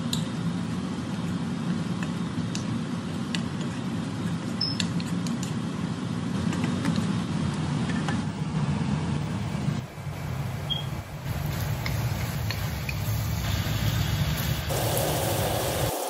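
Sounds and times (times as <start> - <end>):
meat sizzling in a wok: 11.2 - 16.0.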